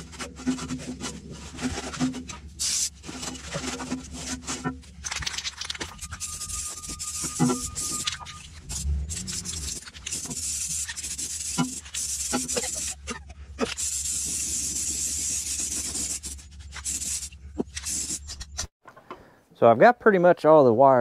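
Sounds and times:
aerosol can spraying: 2.6 - 3.0, 8.7 - 18.2.

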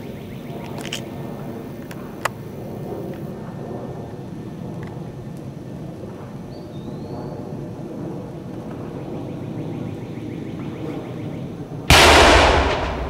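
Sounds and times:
loud explosive blast: 11.9 - 13.0
low steady rumble: 11.9 - 13.0.

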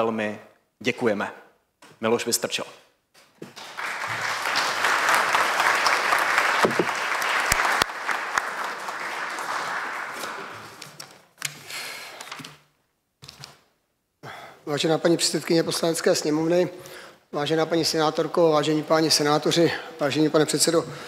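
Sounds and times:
audience applauding: 3.4 - 11.0.

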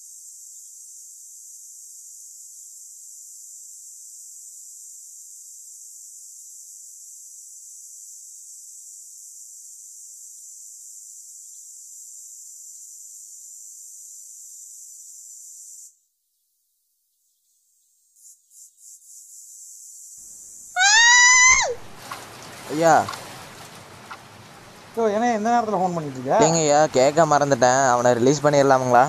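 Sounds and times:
high-pitched insect chorus: 0.0 - 16.1, 18.1 - 23.2, 24.9 - 29.0.

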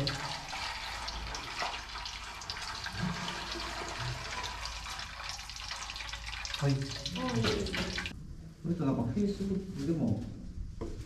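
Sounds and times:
fish skin sizzling in oil: 0.0 - 8.1.

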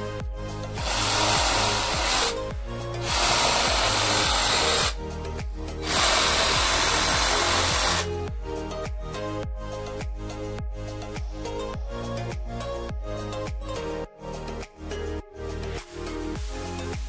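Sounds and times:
background music with steady beat: 0.0 - 17.0
drill spinning wire brush on wood: 0.8 - 2.4, 3.0 - 5.0, 5.8 - 8.1.

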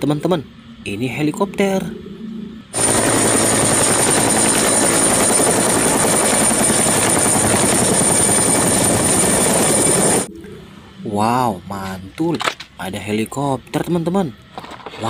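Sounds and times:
high-pitched whine: 0.0 - 14.4
helicopter rotor chop: 2.7 - 10.3.

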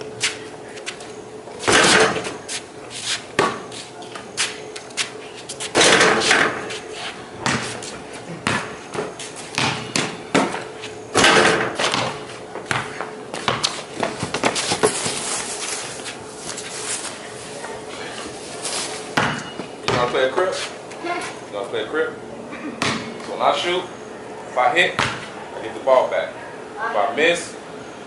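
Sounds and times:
basketball bouncing on concrete: 3.4 - 3.7, 7.4 - 15.0, 19.2 - 20.2, 22.8 - 23.3, 24.9 - 25.3.

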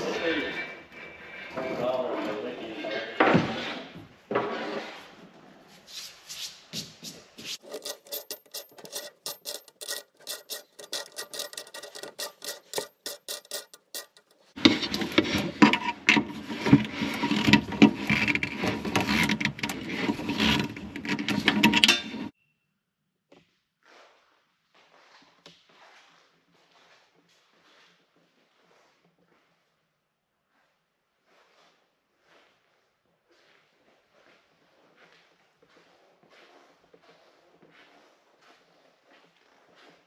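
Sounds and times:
rasping metal scrape: 0.0 - 5.2, 7.5 - 22.4
metal clicking and scraping: 7.6 - 22.4.

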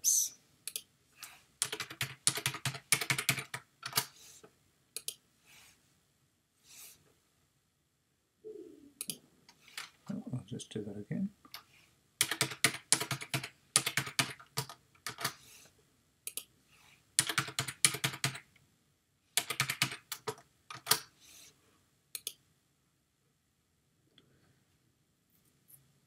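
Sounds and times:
typing on computer keyboard: 1.6 - 4.1, 12.2 - 15.4, 17.2 - 18.5, 19.4 - 21.0.

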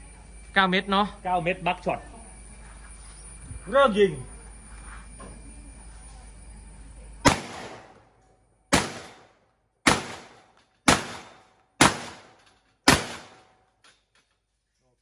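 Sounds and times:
shotgun shots: 7.2 - 8.0, 8.7 - 13.6.

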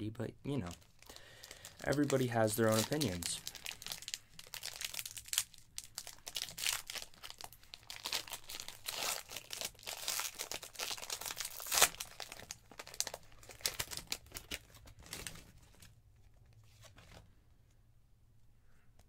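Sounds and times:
foil wrapper crinkling and tearing: 0.7 - 15.7.

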